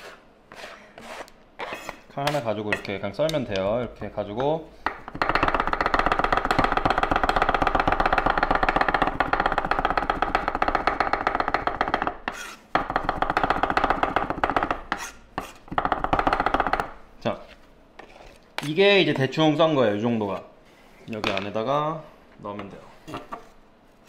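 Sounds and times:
knife mincing on wooden board: 5.1 - 16.8.

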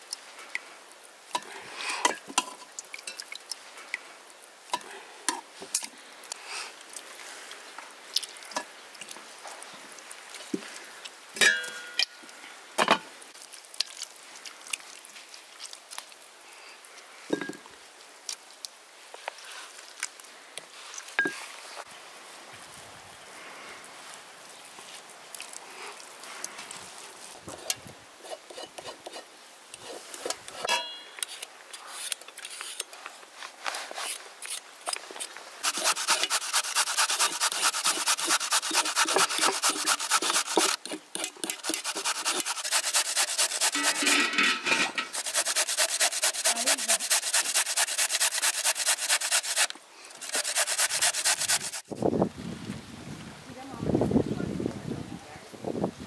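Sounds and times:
carrot grated on metal grater: 35.6 - 51.8.

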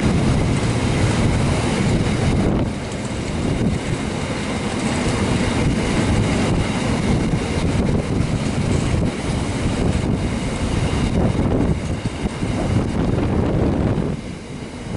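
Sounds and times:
freight train wheels rumbling on rail: 0.0 - 14.9
wind buffeting microphone: 0.0 - 14.9.

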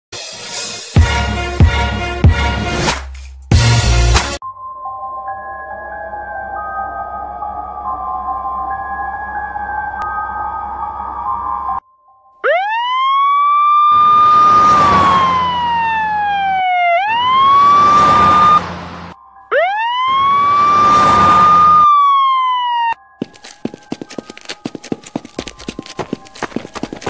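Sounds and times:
police siren wailing: 12.4 - 23.1.

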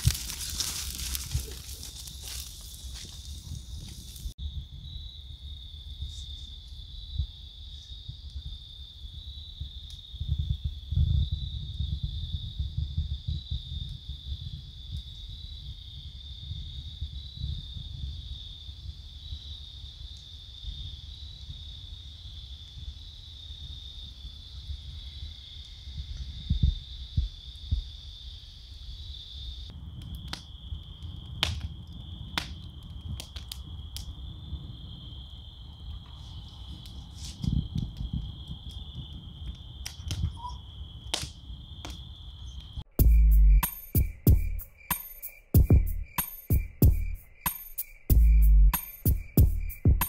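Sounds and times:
wood fire crackling and popping: 0.0 - 4.4, 29.7 - 34.6, 35.7 - 40.4, 41.0 - 42.8
night insects chorus: 0.0 - 50.0.

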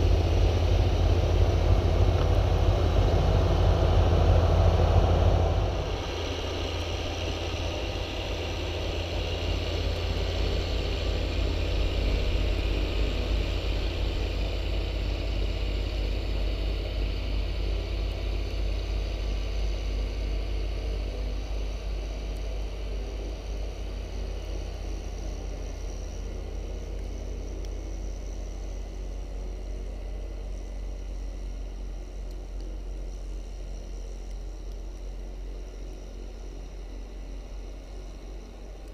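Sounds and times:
tractor diesel engine running: 0.0 - 19.2.

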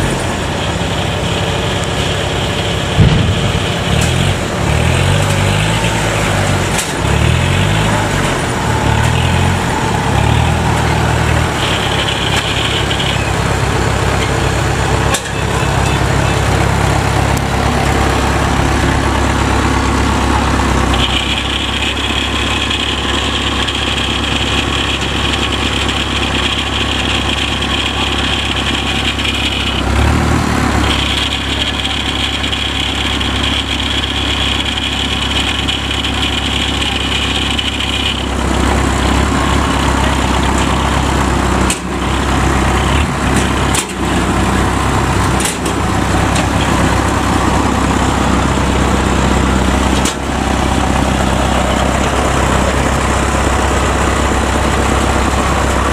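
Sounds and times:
tractor engine running: 0.0 - 55.9
sharp knocks: 2.9 - 4.4.

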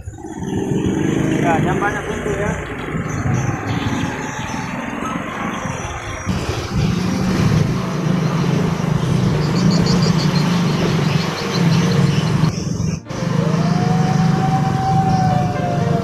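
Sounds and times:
small motorcycle engines running: 0.0 - 16.0.

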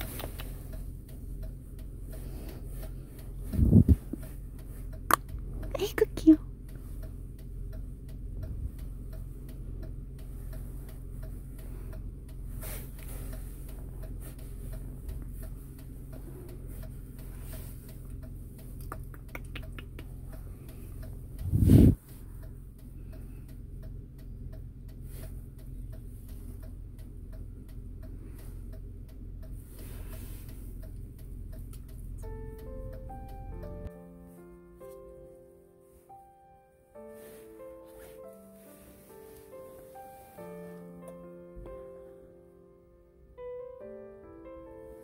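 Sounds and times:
steady ticking: 0.0 - 34.0
low car cabin hum: 0.0 - 36.2.

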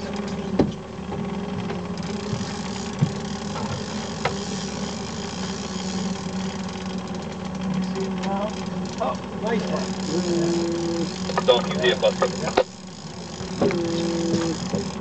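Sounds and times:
outboard motor running: 0.0 - 15.0
sharp knocks and clicks: 0.2 - 4.5, 13.4 - 15.0.

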